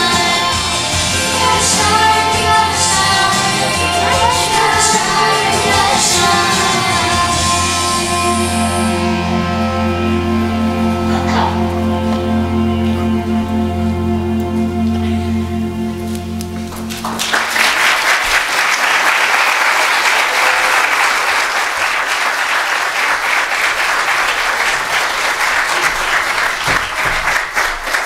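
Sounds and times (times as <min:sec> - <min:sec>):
congregation applauding: 0:00.0 - 0:12.4, 0:16.2 - 0:28.0
held music chord: 0:00.0 - 0:17.4.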